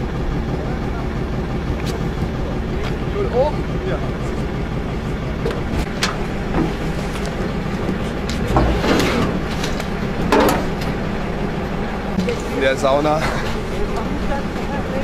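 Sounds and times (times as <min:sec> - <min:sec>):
vehicle rumble: 0:00.0 - 0:15.0
sharp knocks and rattles: 0:05.4 - 0:11.0.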